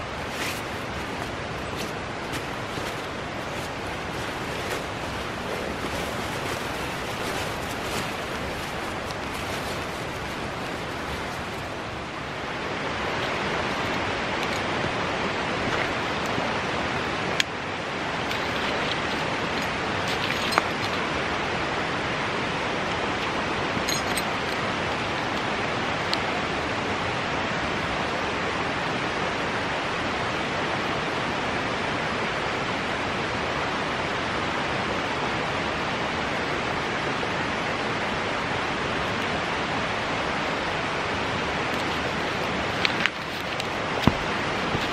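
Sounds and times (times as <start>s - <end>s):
steady rushing noise: 0.0s - 23.7s, 39.4s - 44.9s.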